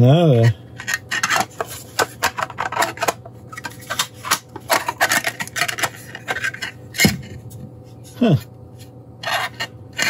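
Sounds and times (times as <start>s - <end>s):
plastic parts clicking and clattering: 0.8s - 7.2s.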